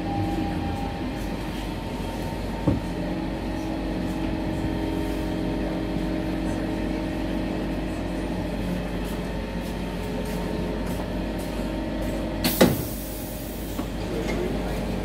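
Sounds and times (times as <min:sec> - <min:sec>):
train traction hum: 0:00.0 - 0:15.0.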